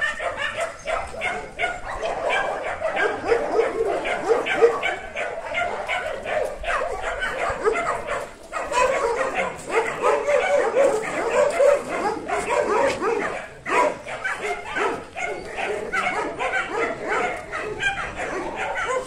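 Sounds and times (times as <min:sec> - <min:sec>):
dogs barking and yipping: 0:00.0 - 0:19.0.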